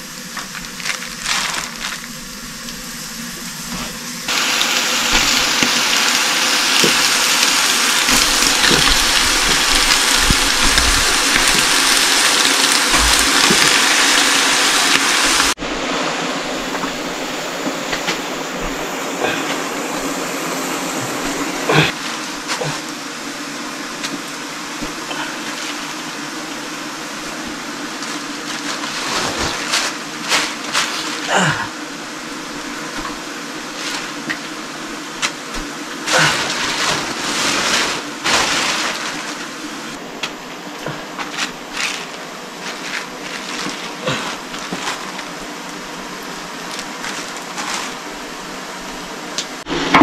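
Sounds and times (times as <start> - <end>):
meat sizzling in oil: 0.0 - 50.0
oil popping: 4.3 - 15.6.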